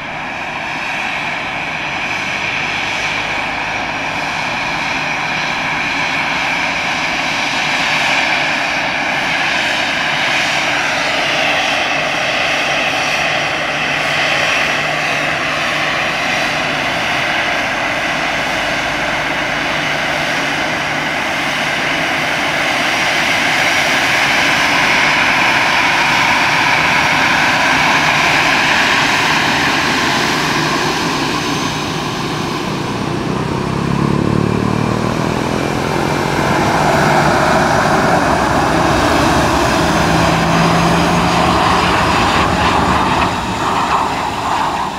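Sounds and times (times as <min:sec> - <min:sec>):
airliner engines roaring and whining: 0:00.0 - 0:44.9.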